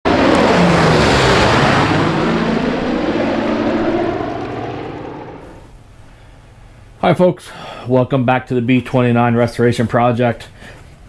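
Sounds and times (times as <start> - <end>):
propeller aircraft flying past: 0.1 - 5.7.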